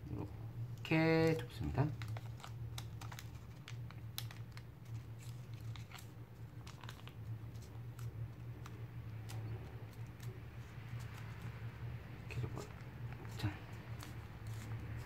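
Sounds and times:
low steady hum: 0.0 - 15.0
paper crinkling: 1.6 - 15.0
small clicks of paper creases: 1.8 - 11.6.

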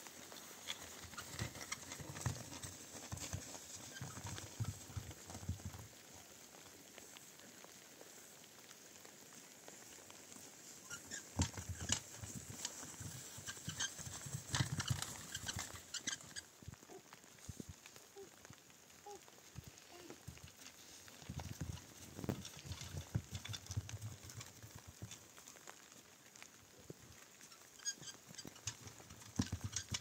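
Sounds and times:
knocks and clatters: 11.4 - 16.2, 21.3 - 25.2, 28.4 - 30.0.

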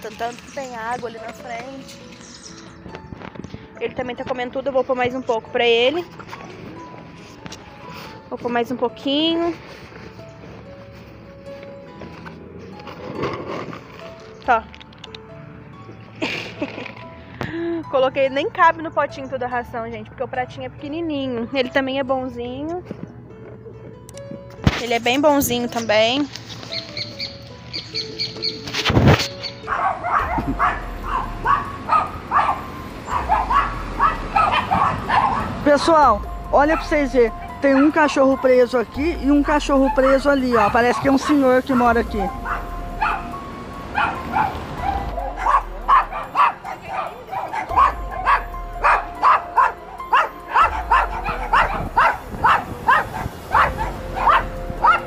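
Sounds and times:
dog barking: 29.5 - 35.7, 37.6 - 38.7, 39.8 - 41.6, 42.3 - 55.0.

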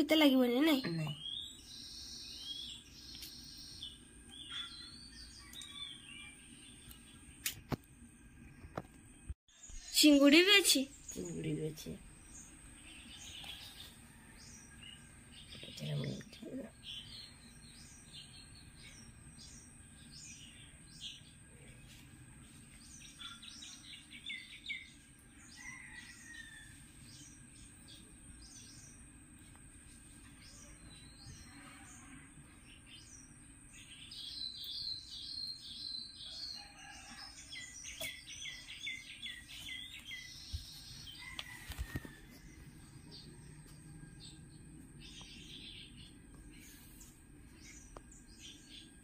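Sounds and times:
small birds chirping: 0.0 - 7.8, 8.4 - 49.0.

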